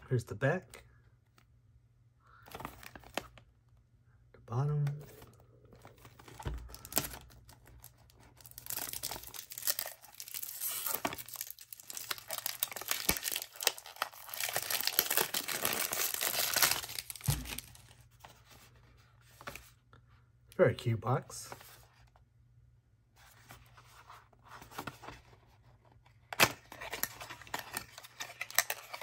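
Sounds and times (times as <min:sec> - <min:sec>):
cellophane crinkling and tearing: 0:05.8 - 0:18.0, 0:26.4 - 0:29.0.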